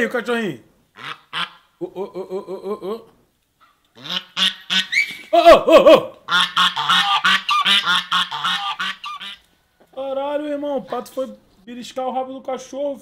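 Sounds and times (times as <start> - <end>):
geese honking: 1.0 - 1.7, 3.6 - 5.2, 6.3 - 9.4.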